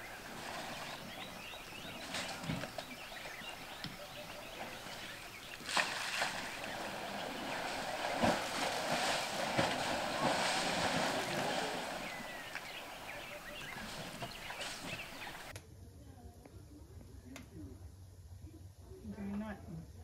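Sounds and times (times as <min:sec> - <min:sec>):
elephants wallowing in mud: 0:00.0 - 0:15.5.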